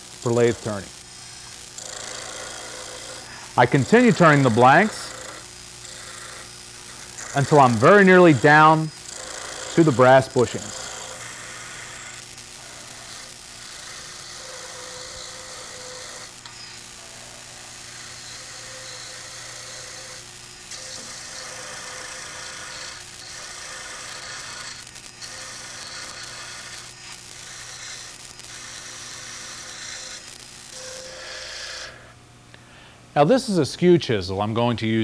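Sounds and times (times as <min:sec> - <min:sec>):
lathe motor humming: 0:00.0 - 0:32.1
gouge scraping spinning wood: 0:01.3 - 0:32.0.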